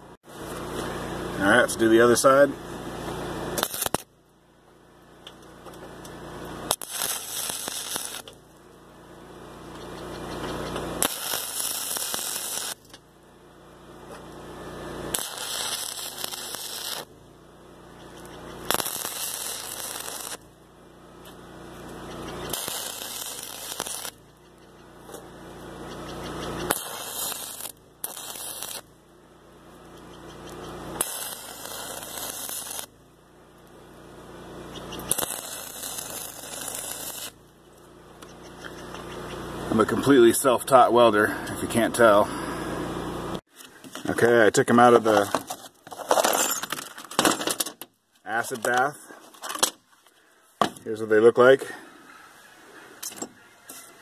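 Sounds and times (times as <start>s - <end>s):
welding arc crackling: 0.0s - 4.4s, 5.2s - 41.1s
low hum: 2.5s - 40.7s.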